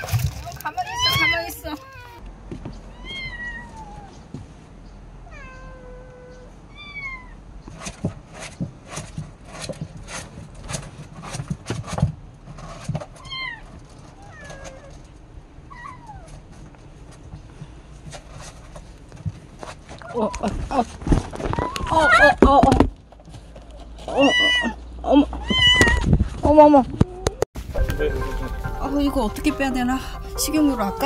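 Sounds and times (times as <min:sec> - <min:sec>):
kitten meowing in distress: 0:24.1 - 0:24.8, 0:25.4 - 0:26.0.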